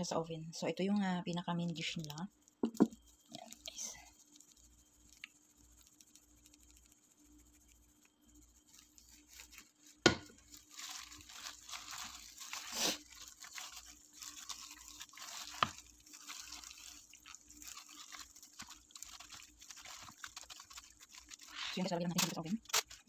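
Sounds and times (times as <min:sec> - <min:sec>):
plastic glove crinkling: 0:01.0 - 0:23.0
wet squishing of chicken: 0:08.9 - 0:23.0.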